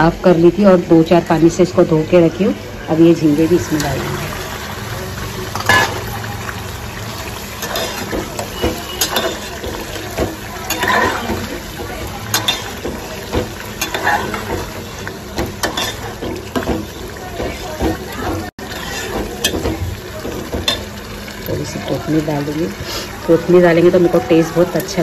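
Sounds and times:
steady cooking hiss: 0.0s - 25.0s
spatula scraping metal pot: 5.5s - 6.1s, 7.4s - 20.9s.

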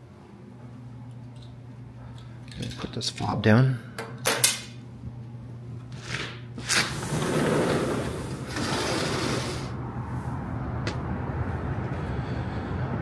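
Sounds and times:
city traffic hum: 4.5s - 13.0s
door scraping: 6.0s - 9.8s.

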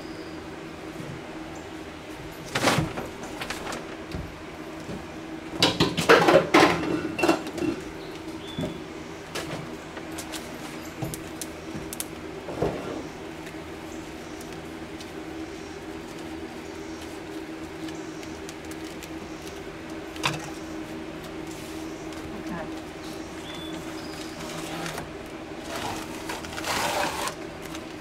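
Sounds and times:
steady low hum: 0.0s - 28.0s
clatter and rustle: 2.4s - 4.2s.

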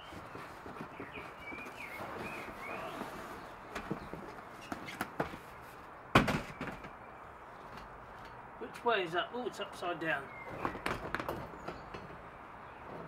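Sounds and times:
cardboard scraping and rustling: 0.0s - 5.6s.

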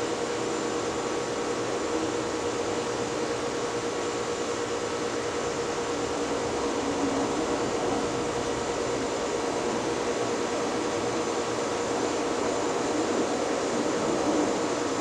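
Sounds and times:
ceiling fan humming: 0.0s - 15.0s.

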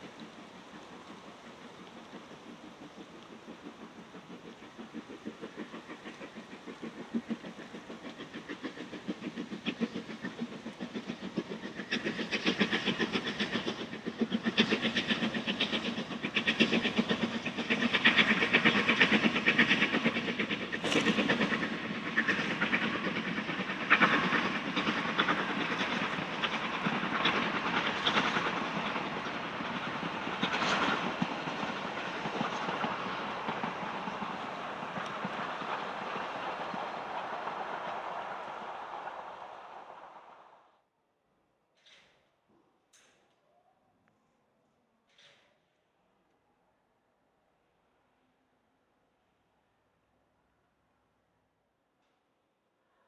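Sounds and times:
steam locomotive exhaust beats: 0.0s - 40.4s.

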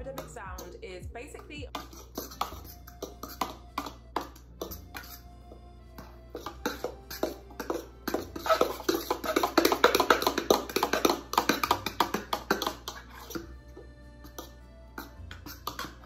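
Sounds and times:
background music: 0.0s - 16.0s
whisk tapping against mixing bowl: 1.4s - 5.2s, 6.3s - 13.4s, 14.3s - 16.0s.

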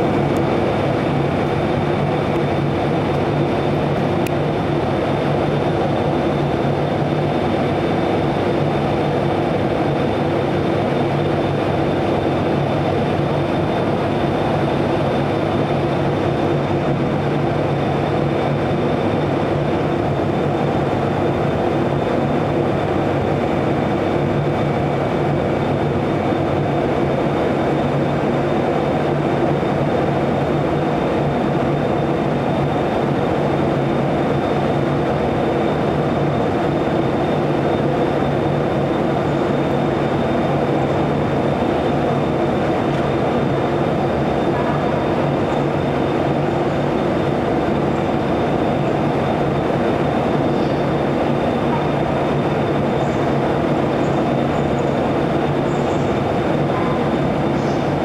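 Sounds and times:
electric locomotive drone: 0.0s - 58.0s
faint high whine: 30.5s - 58.0s.

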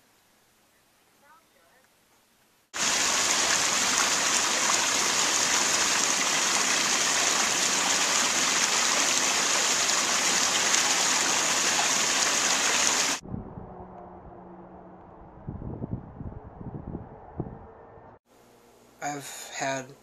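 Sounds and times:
water rushing through channel: 2.8s - 13.2s.

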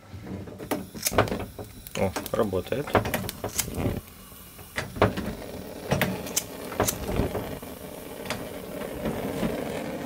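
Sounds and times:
lighter clicks and knocks on stove: 0.6s - 4.0s, 4.6s - 7.6s.

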